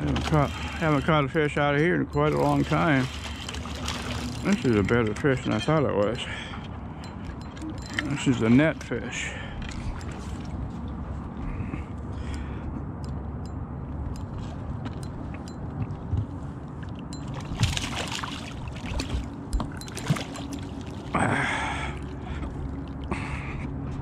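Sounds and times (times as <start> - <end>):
steady low hum: 0.0 - 24.0
fish splashing in water: 2.2 - 4.8, 17.3 - 22.1
water running off a net: 2.4 - 4.8.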